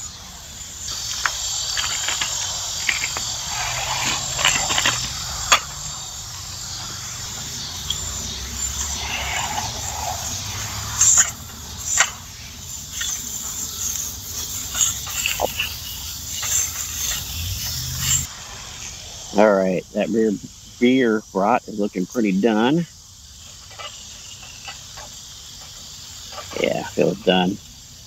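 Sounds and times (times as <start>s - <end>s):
sausage sizzling: 0.0s - 19.8s.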